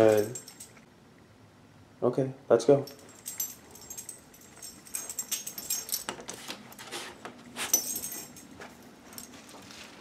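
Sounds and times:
metal dog tags jingling: 0:00.0 - 0:00.8, 0:02.8 - 0:06.9, 0:07.6 - 0:09.6.

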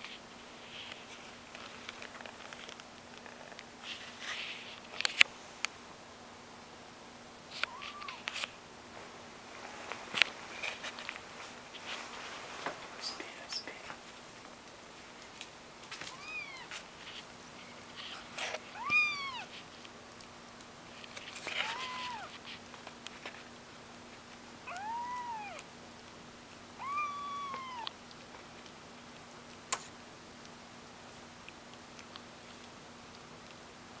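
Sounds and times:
kitten mewing: 0:07.6 - 0:08.2, 0:16.1 - 0:16.7, 0:18.7 - 0:19.5, 0:21.4 - 0:22.4, 0:24.6 - 0:25.7, 0:26.8 - 0:28.0.

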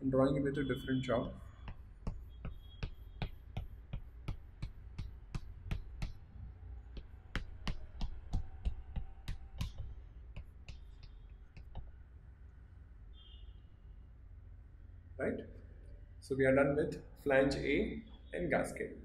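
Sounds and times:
chalk tapping on blackboard: 0:01.2 - 0:12.0.

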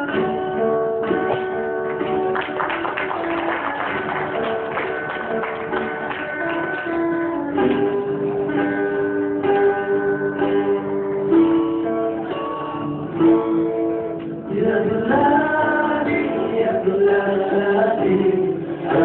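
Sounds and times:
acoustic guitars playing: 0:00.0 - 0:19.0
man singing: 0:13.2 - 0:19.0.

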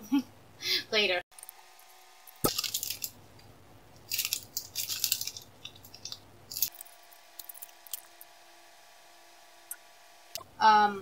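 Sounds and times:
plastic bags crinkling: 0:02.3 - 0:03.2, 0:04.0 - 0:08.2.

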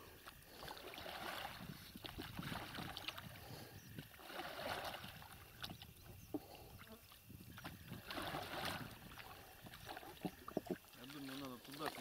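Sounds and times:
paddles splashing in water: 0:00.0 - 0:12.0
small knocks: 0:10.2 - 0:10.8.

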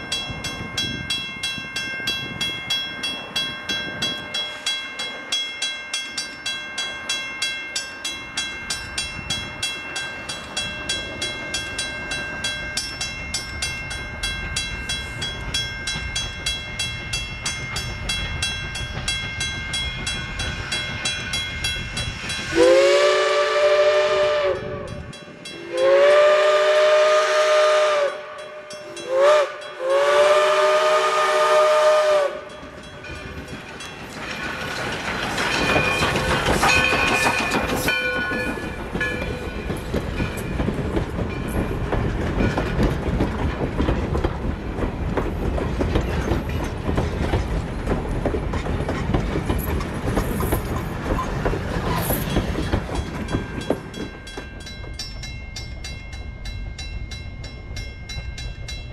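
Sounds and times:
wheels clattering on rail: 0:00.0 - 0:26.9, 0:28.7 - 0:58.9
train rumble: 0:00.0 - 0:58.9
steam locomotive whistle blasts: 0:22.4 - 0:32.6.

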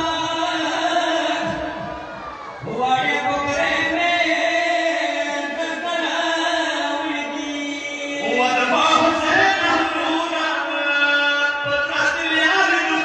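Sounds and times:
man chanting through microphone: 0:00.0 - 0:13.0.

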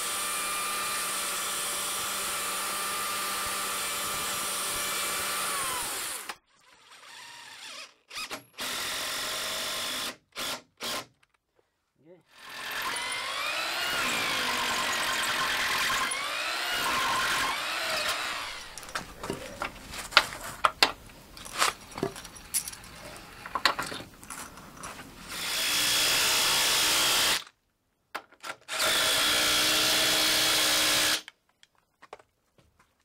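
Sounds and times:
power drill running: 0:00.0 - 0:11.1, 0:12.3 - 0:19.1, 0:25.3 - 0:27.4, 0:28.7 - 0:31.2.

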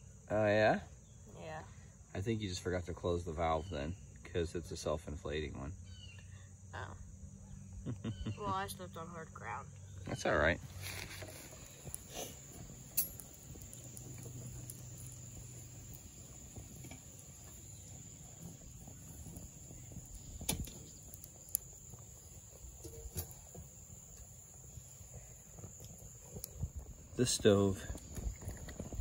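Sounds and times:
twig stove crackling: 0:09.8 - 0:29.0.

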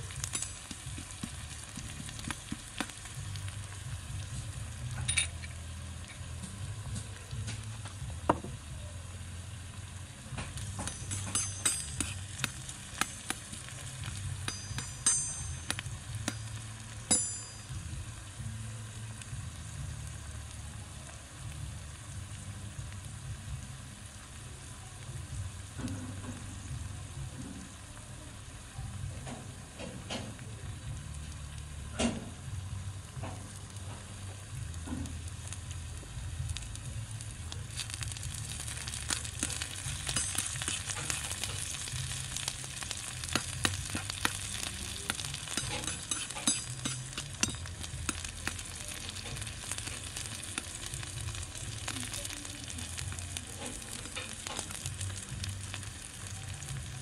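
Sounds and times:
food sizzling in hot oil: 0:00.0 - 0:57.0
metal spoon scraping wok: 0:10.6 - 0:16.6, 0:38.5 - 0:50.7
sharp metal clinks: 0:10.8 - 0:12.2, 0:14.4 - 0:17.8.

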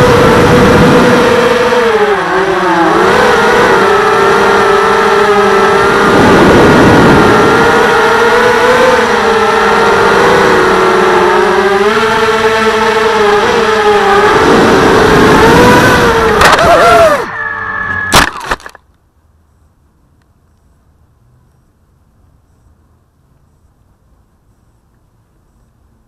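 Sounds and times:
drone motors whining: 0:00.0 - 0:18.8.

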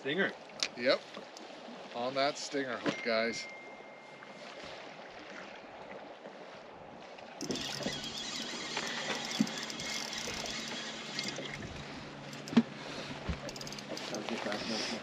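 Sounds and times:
low hum: 0:07.4 - 0:14.5.

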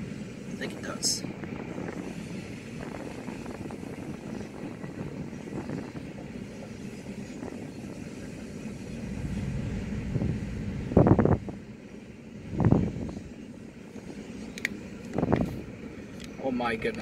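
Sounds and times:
freight train passing: 0:00.0 - 0:17.0.

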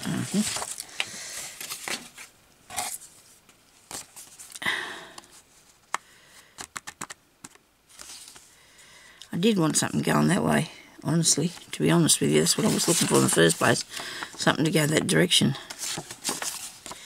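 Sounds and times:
paper rustling and crinkling: 0:00.0 - 0:04.6, 0:06.6 - 0:08.6, 0:12.3 - 0:17.0.

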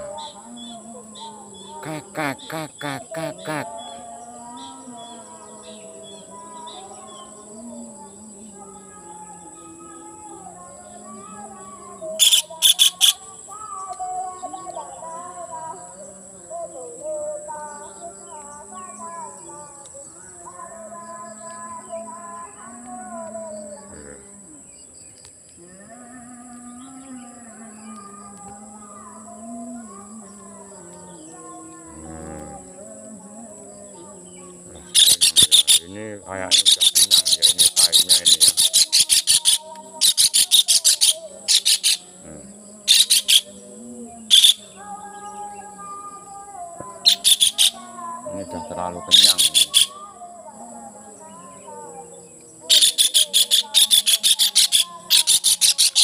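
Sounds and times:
distant voices chanting: 0:00.0 - 0:56.0
high-pitched insect drone: 0:00.0 - 0:56.0
kingfisher rattling calls: 0:12.2 - 0:13.2, 0:34.9 - 0:42.0, 0:42.9 - 0:43.5, 0:44.3 - 0:44.6, 0:47.1 - 0:47.8, 0:49.1 - 0:49.9, 0:52.7 - 0:56.0.

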